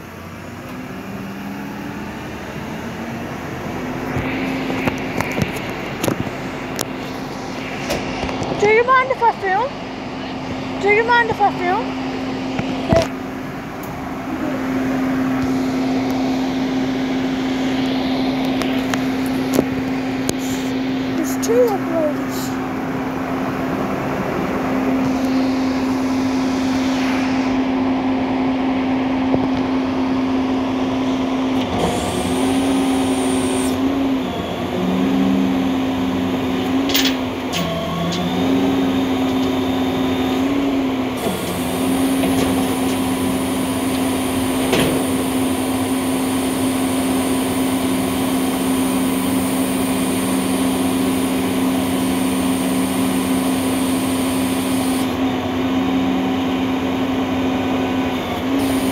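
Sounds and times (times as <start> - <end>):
diesel truck engine running: 0.0 - 58.9
hydraulic lifting arms working: 31.0 - 56.2, 58.0 - 58.9.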